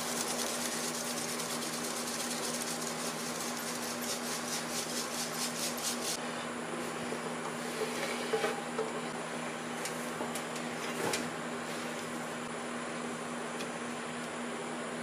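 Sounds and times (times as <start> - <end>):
sand rattling through wire sieve: 0.0 - 6.2.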